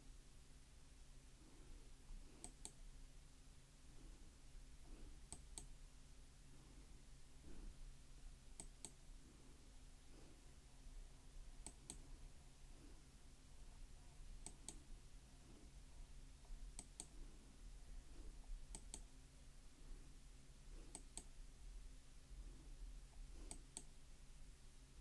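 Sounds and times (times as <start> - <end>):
low room hum: 0.0 - 25.0
faint sharp clicks in pairs: 2.4 - 2.8, 8.6 - 9.0, 11.6 - 12.1, 14.4 - 14.8, 16.4 - 17.2, 18.7 - 19.1, 20.9 - 21.3, 23.1 - 24.0.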